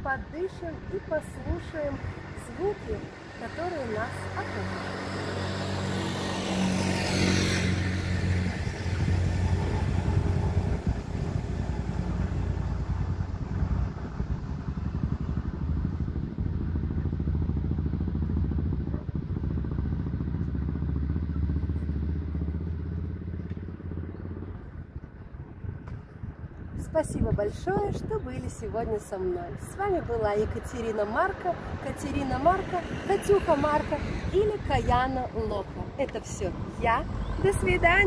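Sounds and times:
motor engine running: 0.0s - 26.6s.

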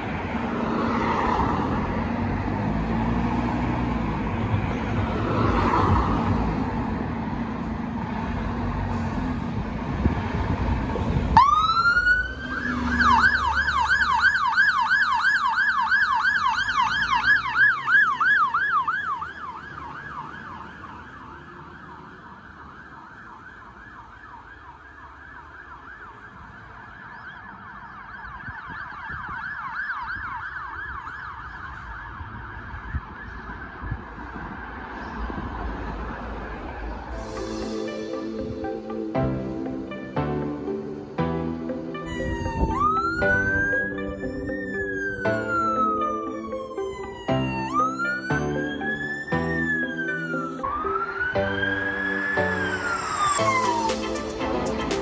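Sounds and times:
fire engine running: 1.6s - 27.2s, 36.5s - 55.0s
siren wailing and yelping: 11.4s - 34.8s, 41.8s - 54.2s.

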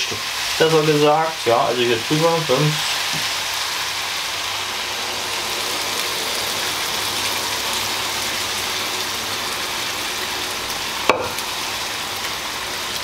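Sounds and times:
broth pouring into pan: 0.0s - 13.0s
meat sizzling in a frying pan: 0.0s - 13.0s
sharp knock: 11.1s - 11.4s.

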